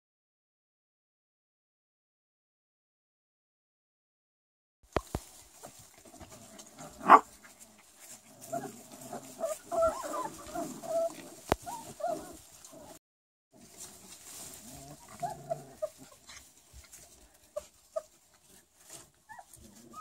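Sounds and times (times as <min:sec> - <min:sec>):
puppies whimpering and yipping: 0:06.5 - 0:13.0, 0:14.2 - 0:16.8, 0:17.5 - 0:20.0.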